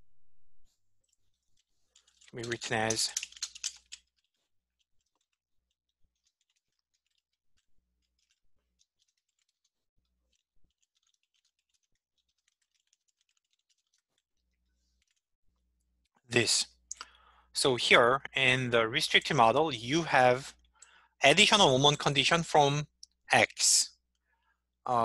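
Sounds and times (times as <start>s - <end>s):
typing on computer keyboard: 2.0s - 4.3s, 6.1s - 7.3s, 10.3s - 14.0s.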